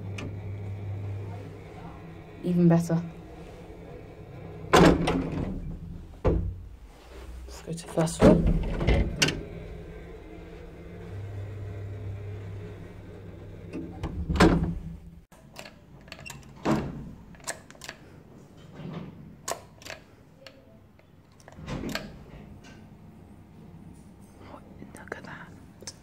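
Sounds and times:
lift car humming: 0:00.0 - 0:15.3
heavy lift clunk: 0:03.2 - 0:06.8, 0:08.0 - 0:15.2.

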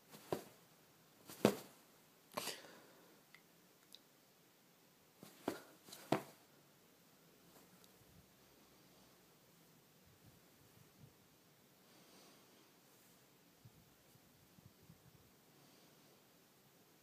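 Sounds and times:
cat claws rustling on fabric: 0:00.0 - 0:00.6, 0:01.2 - 0:01.8, 0:05.2 - 0:06.4.

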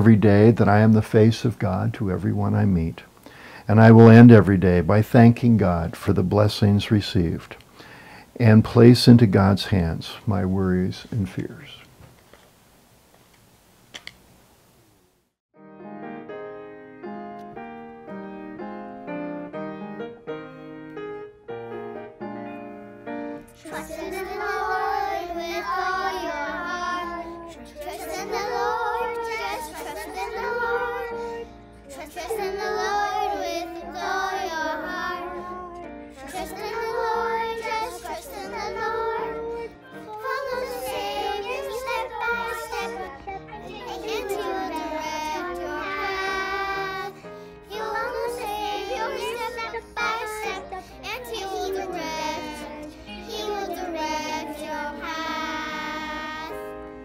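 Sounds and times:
piano music: 0:15.6 - 0:57.0
children's choir singing: 0:23.6 - 0:57.0.

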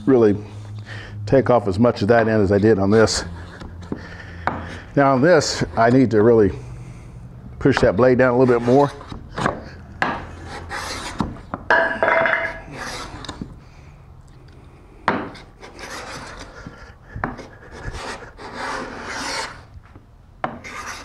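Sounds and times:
cabinet scraper rasping on wood: 0:08.4 - 0:11.4, 0:12.6 - 0:13.4, 0:15.3 - 0:19.6, 0:20.5 - 0:21.0.

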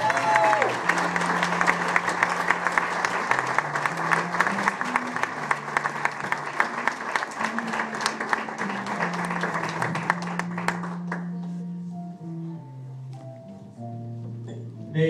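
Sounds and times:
audience applauding: 0:00.0 - 0:11.6
low held music notes: 0:08.5 - 0:15.0.

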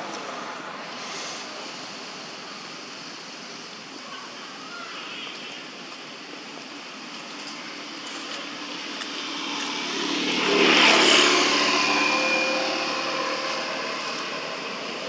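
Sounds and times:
passing vehicle engine: 0:09.1 - 0:15.0.

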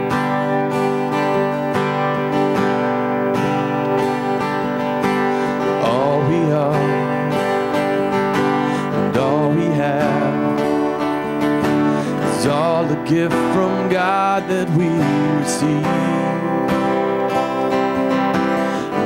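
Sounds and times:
strummed acoustic guitar: 0:00.0 - 0:19.0
person singing: 0:05.2 - 0:19.0.

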